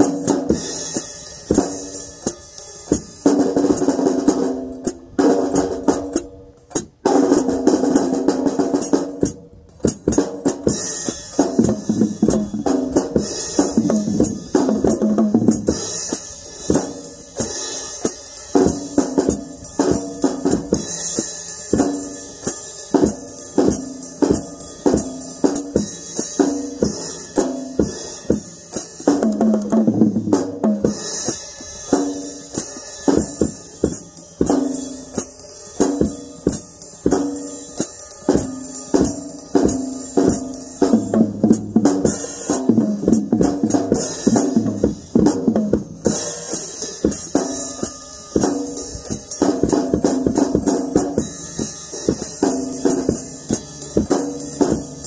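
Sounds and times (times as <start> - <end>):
drum kit swing groove: 0.0 - 55.0.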